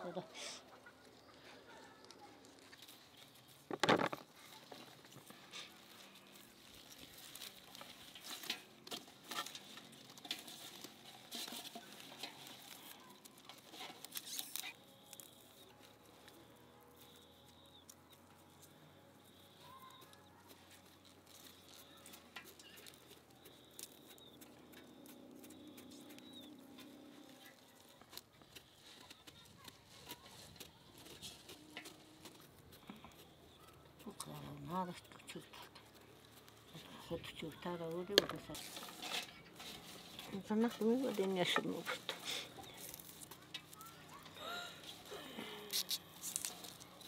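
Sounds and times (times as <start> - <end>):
green onion stalks snapping: 45.5 - 47.0.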